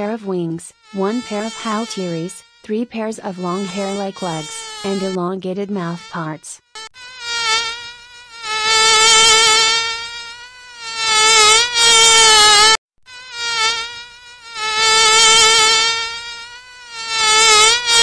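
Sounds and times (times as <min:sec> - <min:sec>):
mosquito wing whine: 0:00.7 - 0:05.2, 0:05.8 - 0:18.0.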